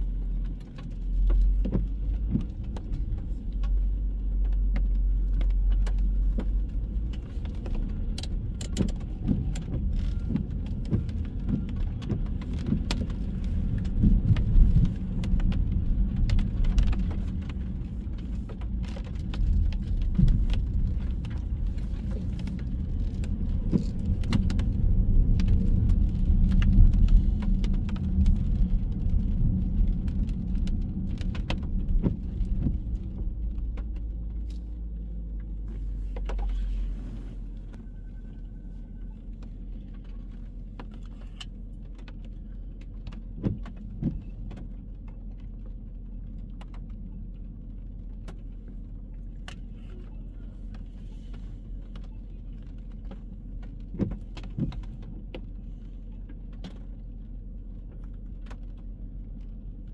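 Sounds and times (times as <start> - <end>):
car road noise rumble: 0.0 - 59.9
small clicks and rattles: 0.2 - 36.6.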